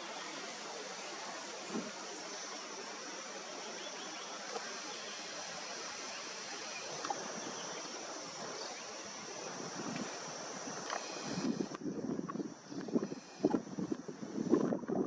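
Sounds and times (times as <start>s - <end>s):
steady hiss: 0.0s - 15.0s
faint clicks: 10.8s - 14.8s.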